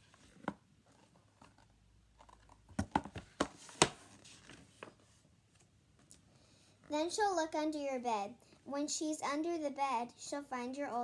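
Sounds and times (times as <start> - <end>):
book pages turning and tapping: 0.0 - 5.7.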